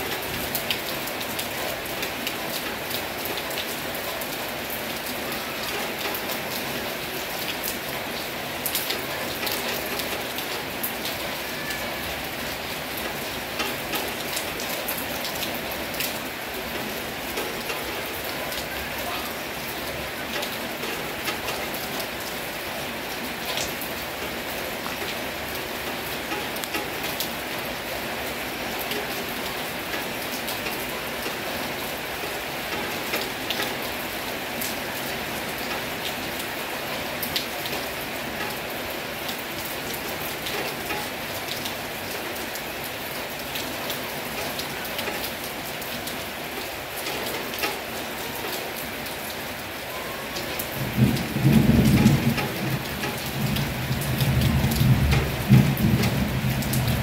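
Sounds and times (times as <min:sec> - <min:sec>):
heavy rain falling: 0:00.0 - 0:57.0
low rumble of thunder: 0:50.7 - 0:57.0.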